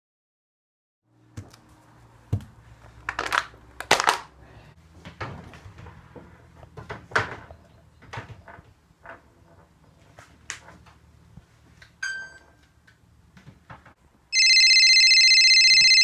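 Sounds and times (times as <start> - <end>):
brief high tone: 14.4 - 16.0.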